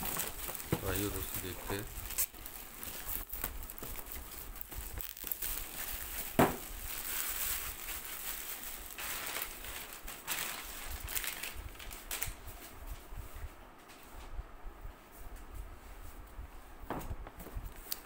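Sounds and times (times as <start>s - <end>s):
plastic mailer bag crinkling: 0.0s - 12.4s.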